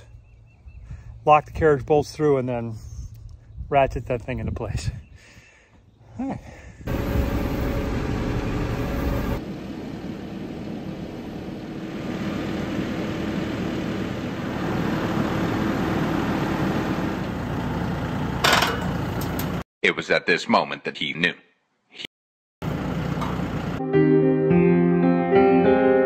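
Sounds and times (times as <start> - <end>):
tractor diesel engine running: 6.9 - 19.6, 22.6 - 23.8.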